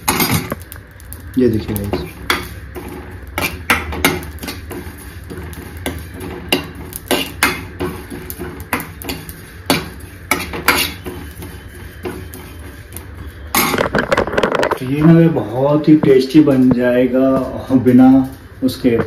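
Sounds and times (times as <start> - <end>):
metal ladle scraping metal pan: 2.3 - 14.9.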